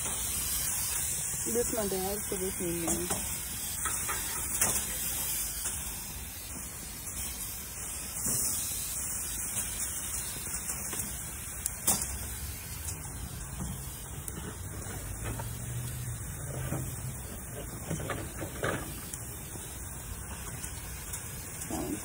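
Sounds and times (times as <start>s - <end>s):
meat sizzling on grill: 0.0s - 22.0s.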